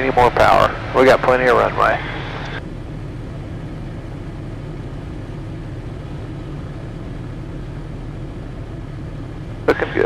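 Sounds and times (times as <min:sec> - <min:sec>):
aircraft engine and propeller droning: 0:00.0 - 0:10.0.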